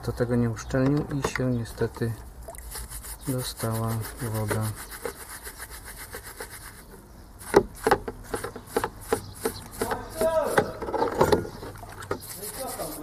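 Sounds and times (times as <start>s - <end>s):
brush scrubbing in soapy water: 2.5s - 10.8s, 11.9s - 13.0s.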